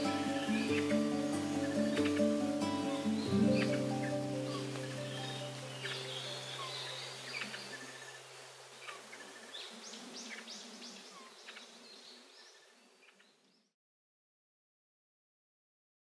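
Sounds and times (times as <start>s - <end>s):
low background music note: 0.0s - 7.1s
high bird chirps: 0.0s - 8.0s
insect buzzing: 0.0s - 11.9s.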